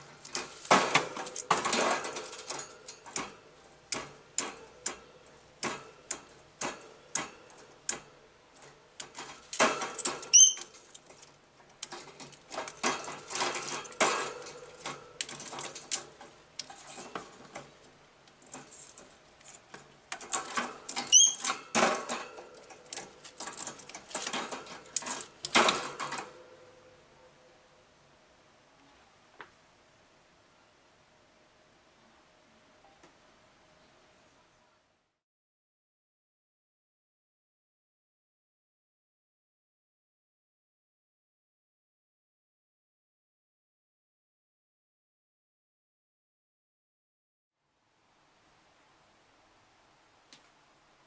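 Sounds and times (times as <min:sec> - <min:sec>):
pinecone rattling on wire grate: 0:00.0 - 0:26.6
parrot squeaks: 0:10.3 - 0:10.7, 0:21.1 - 0:21.4.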